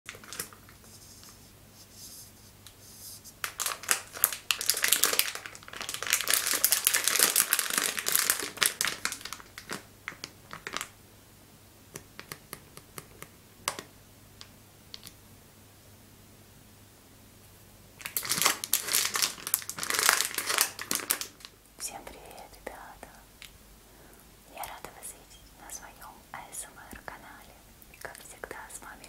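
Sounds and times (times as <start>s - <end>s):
plastic packaging crinkling: 0.1s - 1.3s, 3.4s - 11.0s, 18.0s - 22.0s.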